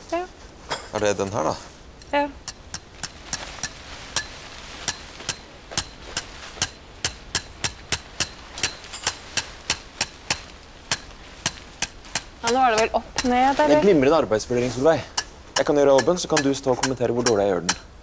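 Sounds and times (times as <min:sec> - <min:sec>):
tent fabric rustling: 0:02.9 - 0:15.1.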